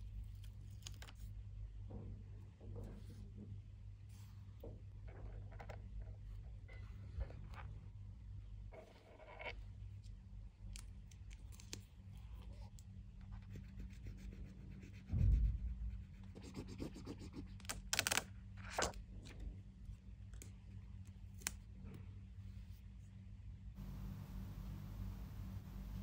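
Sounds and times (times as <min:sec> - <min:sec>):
paper rustling and scratching: 0:16.5 - 0:19.0.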